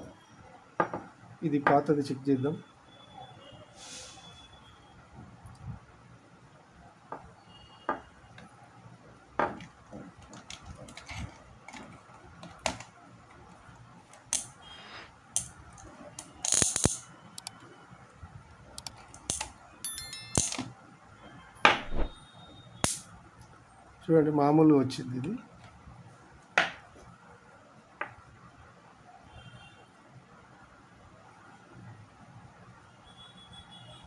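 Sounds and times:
sharp electric snap: 22.8 - 23.1.

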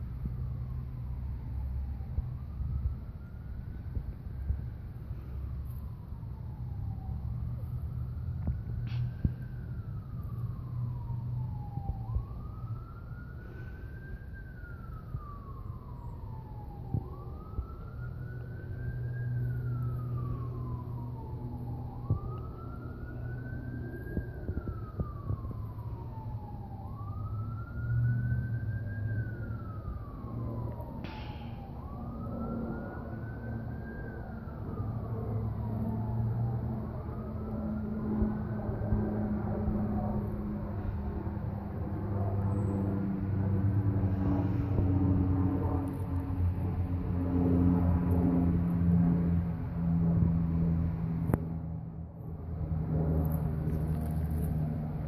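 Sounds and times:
steady low rumble: 0.0 - 27.9, 43.7 - 55.0
siren wailing: 0.0 - 55.0.

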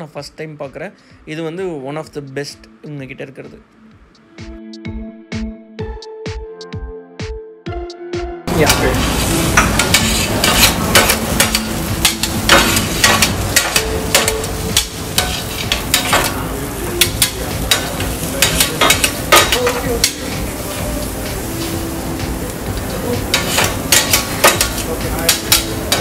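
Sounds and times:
food sizzling on hot plate: 8.5 - 26.0
metal paddles scraping griddle: 8.6 - 20.7, 23.2 - 26.0.

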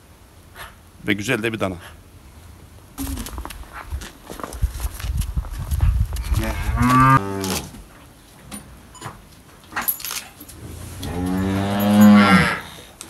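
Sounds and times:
cattle mooing: 6.4 - 7.6, 11.0 - 12.7.

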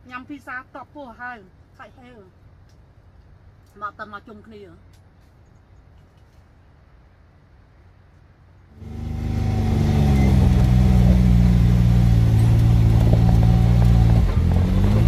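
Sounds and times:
utility vehicle engine running: 8.7 - 15.0.

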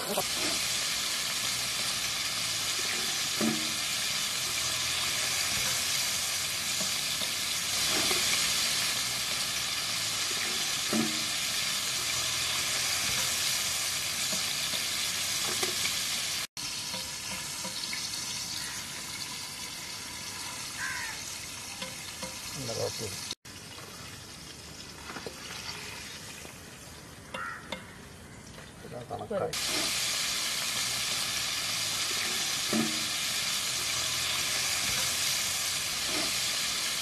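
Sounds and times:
chicken deep-frying in oil: 0.0 - 37.0
ladle knocking pan: 2.9 - 3.9, 10.3 - 11.4, 32.2 - 33.2.

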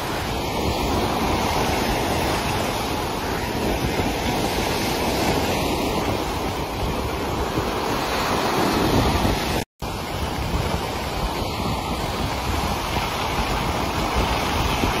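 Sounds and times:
sea surf churning: 0.0 - 15.0
wind buffeting microphone: 0.0 - 15.0.

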